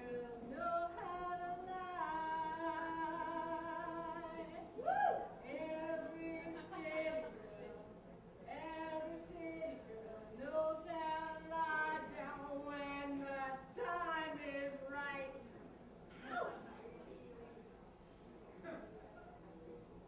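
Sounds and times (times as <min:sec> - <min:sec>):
woman singing into a microphone: 0:00.0 - 0:07.8, 0:08.5 - 0:15.5.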